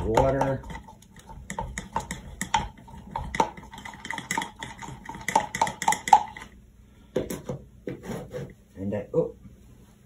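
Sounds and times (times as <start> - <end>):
brush handle knocking on plastic jar: 0.0 - 6.3
paintbrush stirring glue: 0.0 - 6.5.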